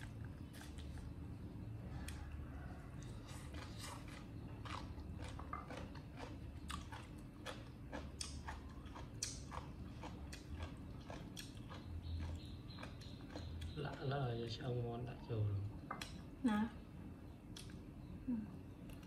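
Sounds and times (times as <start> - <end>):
monkey chewing crunchy food: 0.0 - 14.4
low steady hum: 0.0 - 19.0.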